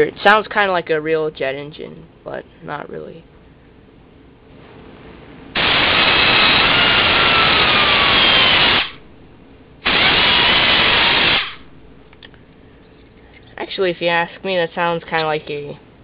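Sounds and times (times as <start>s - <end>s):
air engine hissing whine: 3.4s - 13.5s.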